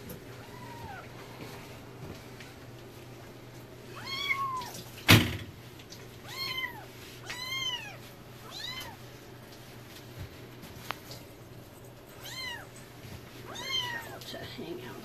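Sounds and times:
kittens meowing: 0.4 - 1.1, 3.9 - 4.8, 6.2 - 9.0, 12.2 - 12.7, 13.5 - 14.2.

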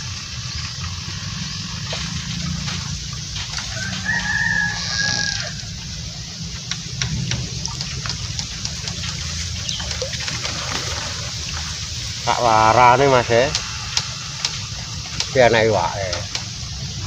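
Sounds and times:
steady low rumble: 0.0 - 17.0
rooster crowing: 3.5 - 6.2.

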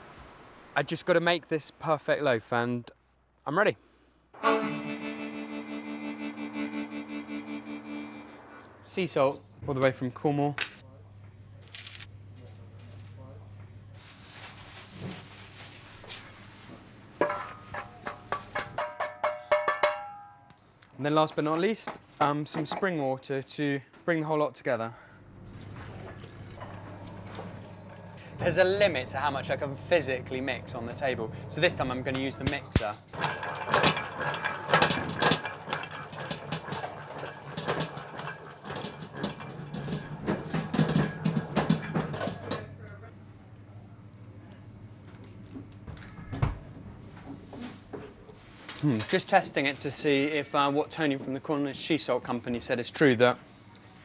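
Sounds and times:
salt rustling in bowl: 14.0 - 17.8
metal bowl knocking with ring: 17.2 - 20.5
dough mixer motor hum: 33.2 - 42.4.

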